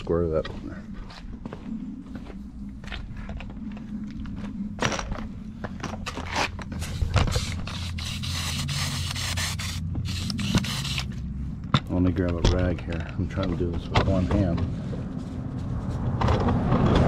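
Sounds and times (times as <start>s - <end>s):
sprayer pump scraping strokes: 6.8s - 11.1s.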